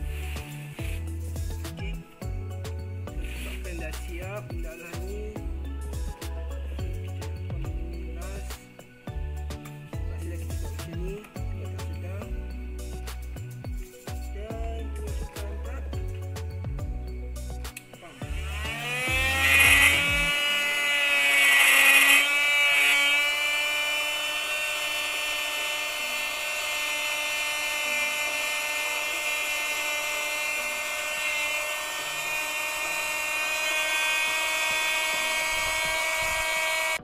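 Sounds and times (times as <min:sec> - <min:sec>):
electric air pump whine: 0:00.0 - 0:37.0.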